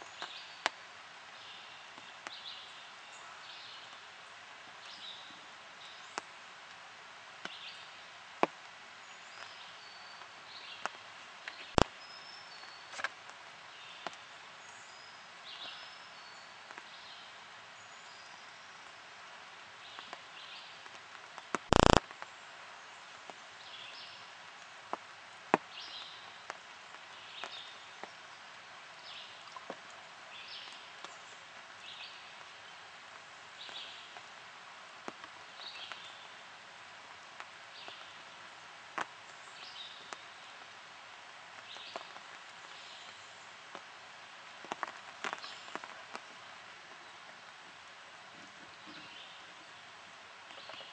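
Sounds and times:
steady hiss: 0.0s - 50.9s
sharp ticks: 21.6s - 22.0s.

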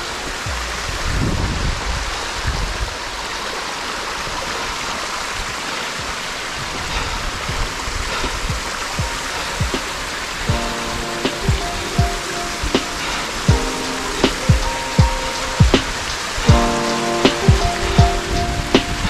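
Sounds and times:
water rushing down rocks: 0.0s - 19.0s
soft low thumps: 8.3s - 10.7s, 14.4s - 16.8s.

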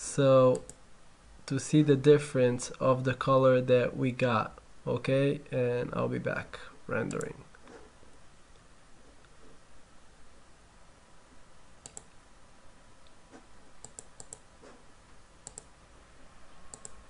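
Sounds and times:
room hiss: 0.0s - 17.0s
mouse buttons clicking: 11.8s - 12.1s, 13.8s - 14.4s, 15.4s - 15.7s, 16.7s - 17.0s.

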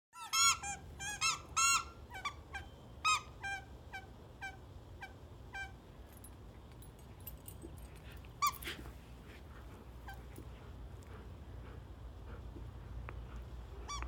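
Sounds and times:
dog toy squeaking: 0.2s - 5.8s.

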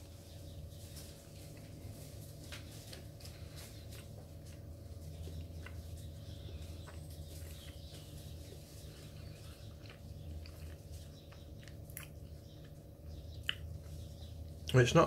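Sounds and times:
low hum: 0.0s - 14.8s
chewing and wet mouth clicks: 9.6s - 13.9s.

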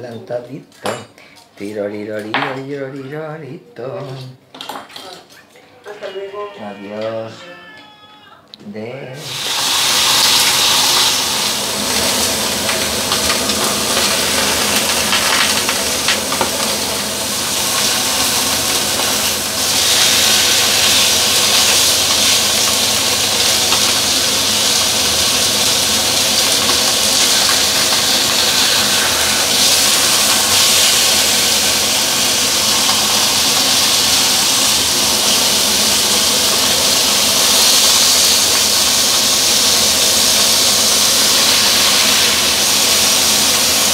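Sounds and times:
fish sizzling in a frying pan: 9.2s - 43.9s.

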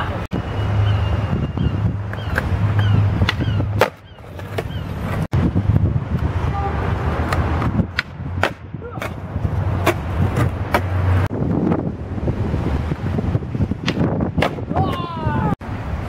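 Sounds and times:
skateboard rolling rumble: 2.0s - 14.7s
skateboard wheels clacking: 7.2s - 11.2s.

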